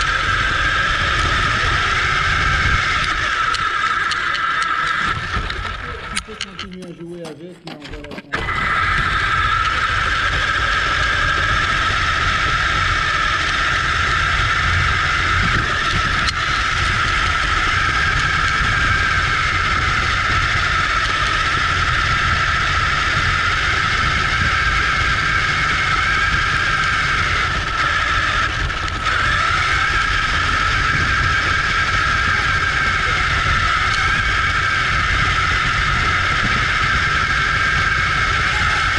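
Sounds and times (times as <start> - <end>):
toy car motor and gear whine: 0.0 - 38.9.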